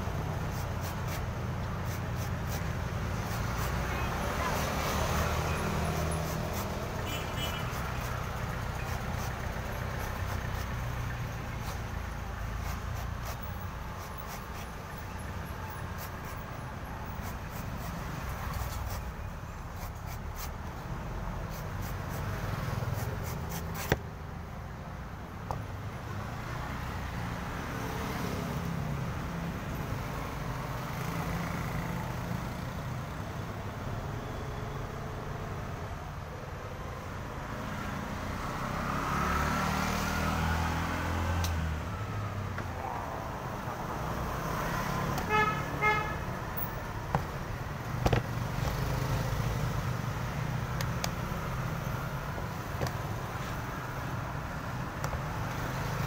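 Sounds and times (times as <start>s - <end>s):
road traffic passing: 0.0s - 56.0s
car horn beeps: 7.0s - 7.8s, 45.2s - 46.2s
knife clicks on coconut husk: 41.4s - 41.6s.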